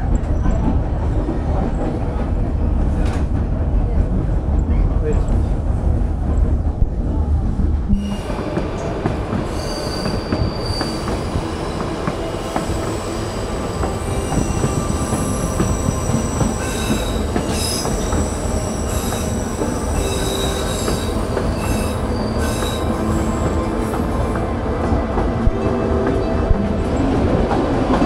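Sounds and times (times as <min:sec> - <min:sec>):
train rumbling and rattling on rails: 0:00.0 - 0:28.0
steel wheels squealing: 0:09.5 - 0:11.8, 0:12.5 - 0:23.4.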